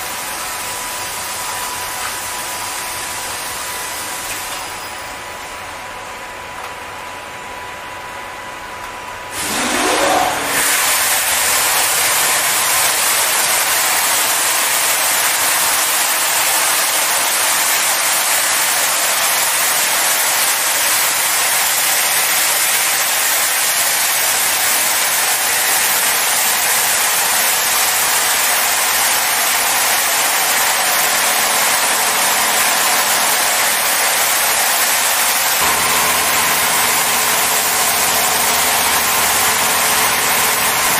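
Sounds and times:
rising whine of spray: 0:09.3 - 0:11.7
high-pressure water jets hissing: 0:24.2 - 0:40.9.

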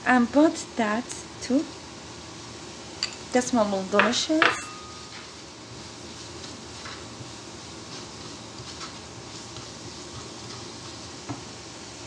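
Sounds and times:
onions sizzling in oil: 0:00.0 - 0:12.0
wooden spoon scraping pan: 0:06.0 - 0:11.5.

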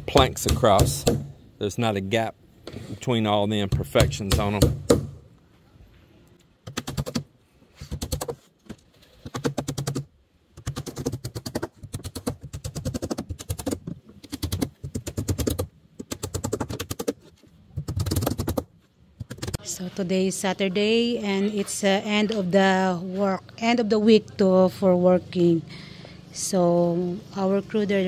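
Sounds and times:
hammers driving nails into wood: 0:00.0 - 0:01.4, 0:03.7 - 0:05.2.

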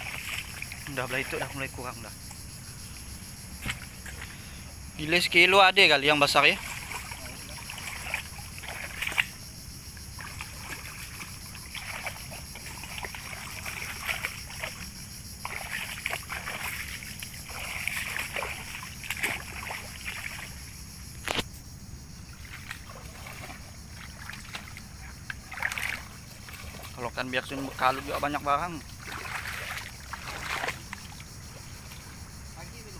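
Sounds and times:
muddy water sloshing and splashing: 0:00.0 - 0:21.5, 0:22.1 - 0:32.9.

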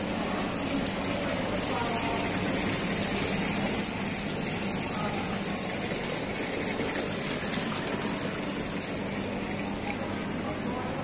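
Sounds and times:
water pouring and bubbling: 0:00.0 - 0:11.0.

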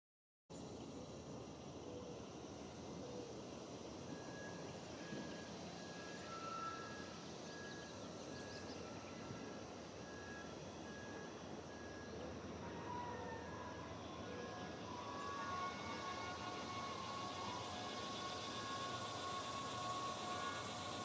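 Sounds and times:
faint train horn: 0:04.1 - 0:07.8, 0:08.8 - 0:21.0.

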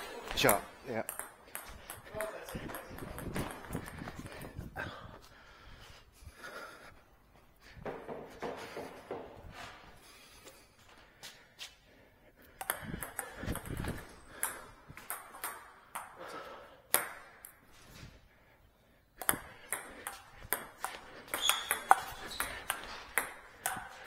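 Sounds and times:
table tennis ball clicking: 0:00.5 - 0:04.1, 0:12.6 - 0:16.2, 0:19.2 - 0:24.0.

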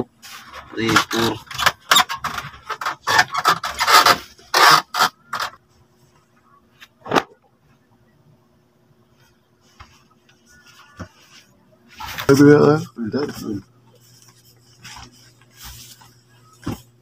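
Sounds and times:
faint steady hum: 0:00.0 - 0:17.0
doormats scraping and rubbing: 0:09.6 - 0:16.9.

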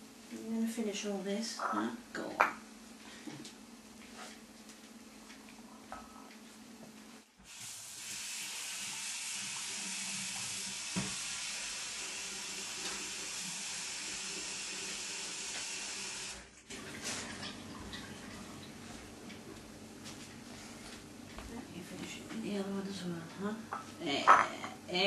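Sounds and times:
running water hiss: 0:07.4 - 0:16.5.

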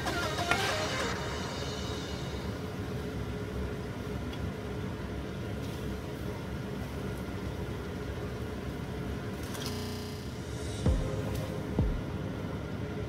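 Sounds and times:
low hum and rumble: 0:01.1 - 0:13.0
dough frying in hot oil: 0:02.9 - 0:09.3.

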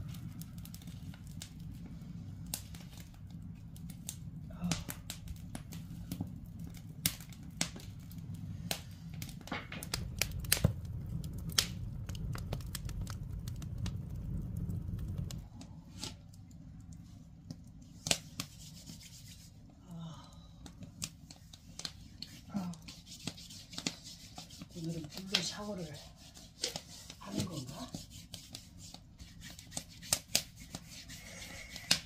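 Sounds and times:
low rumble: 0:00.0 - 0:17.0
wood fire crackling and popping: 0:00.0 - 0:32.0.

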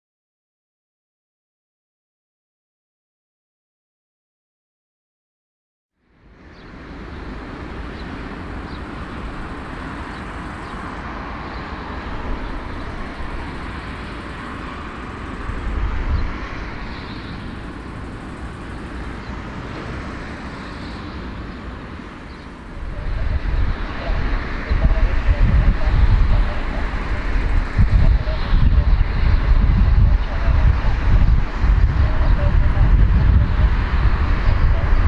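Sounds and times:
jet engines running: 0:06.2 - 0:35.0.

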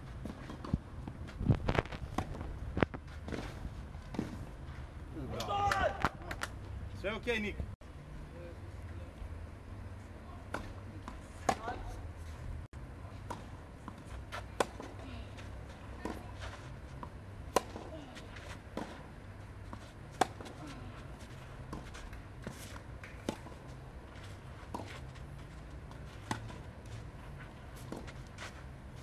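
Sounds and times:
tennis balls struck by rackets: 0:10.4 - 0:12.0, 0:13.2 - 0:15.1, 0:15.9 - 0:23.8, 0:25.8 - 0:27.0.

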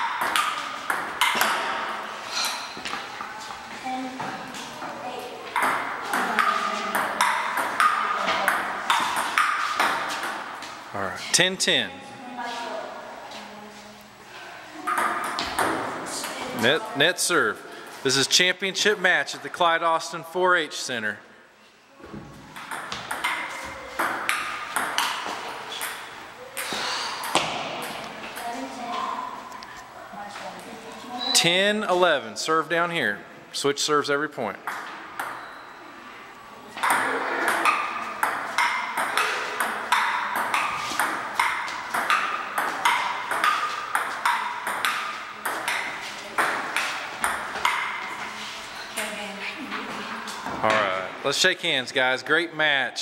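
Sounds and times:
table tennis ball hits: 0:00.0 - 0:02.0, 0:05.5 - 0:10.5, 0:14.9 - 0:16.4, 0:22.5 - 0:28.1, 0:34.6 - 0:35.5, 0:36.8 - 0:48.1
ping pong ball clicking: 0:36.8 - 0:47.9.

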